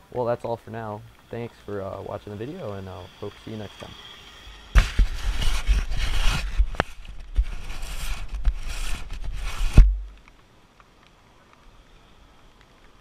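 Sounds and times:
gloved hand rubbing a camera: 4.5 - 10.0
heavy thump: 9.7 - 10.2.

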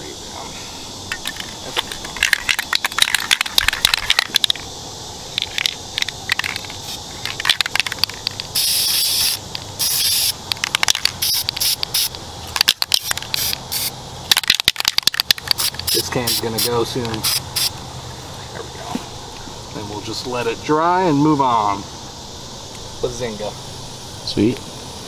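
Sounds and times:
spray-paint can hissing: 5.5 - 14.0, 14.6 - 17.8
irregular crackling clicks: 14.3 - 16.0.

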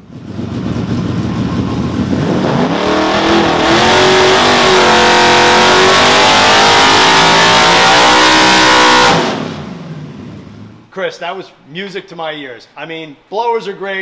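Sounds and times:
engine at full throttle: 0.0 - 10.8.

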